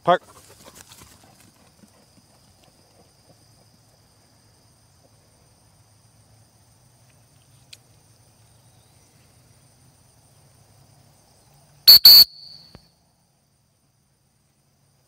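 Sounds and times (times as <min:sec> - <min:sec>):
crickets chirring: 0:00.1 - 0:15.0
high whistle blasts: 0:11.9 - 0:12.8.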